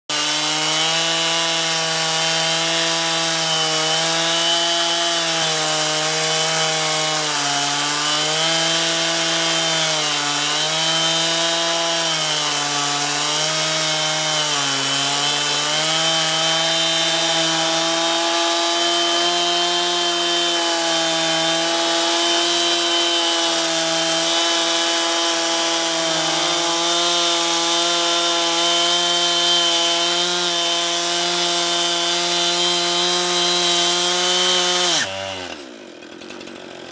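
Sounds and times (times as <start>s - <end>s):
chainsaw ripping a log: 0.1s - 36.9s.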